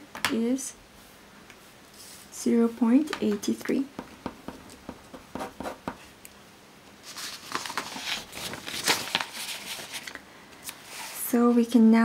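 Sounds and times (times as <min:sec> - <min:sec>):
paper rustling: 0:07.0 - 0:10.2.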